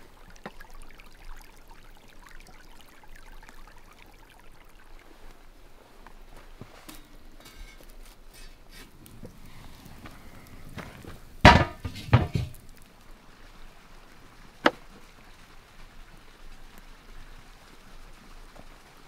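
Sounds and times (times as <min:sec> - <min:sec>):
wooden knocks and clatters: 0:11.1 - 0:12.6.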